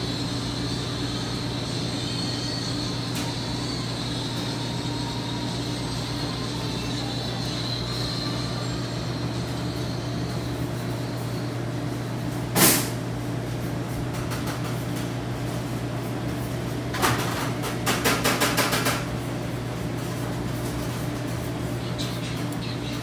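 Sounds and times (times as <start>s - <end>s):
steady low hum: 0.0s - 18.1s.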